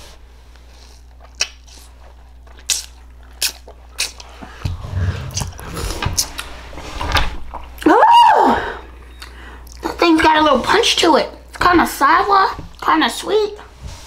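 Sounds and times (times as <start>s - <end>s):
fruit being bitten and chewed: 0.5s - 6.6s.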